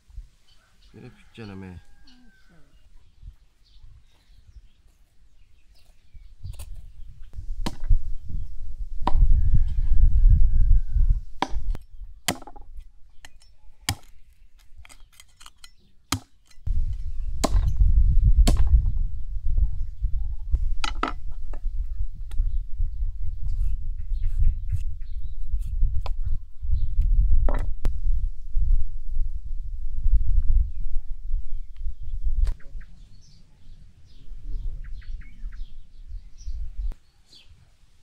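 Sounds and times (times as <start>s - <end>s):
low rumble: 16.7s - 32.5s.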